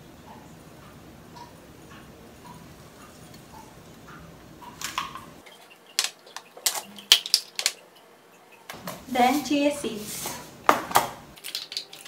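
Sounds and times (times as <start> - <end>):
plastic measuring cups clattering: 4.8 - 7.8, 10.7 - 12.0.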